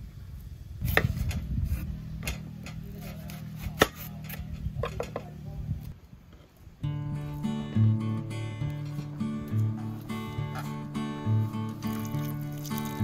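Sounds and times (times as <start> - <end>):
dry onion skin rustling: 1.0 - 4.8, 8.7 - 13.0.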